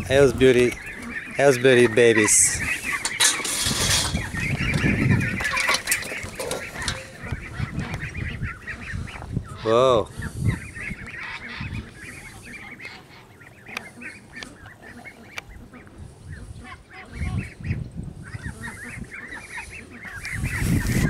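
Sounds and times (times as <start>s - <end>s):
ducklings peeping: 0.0s - 21.0s.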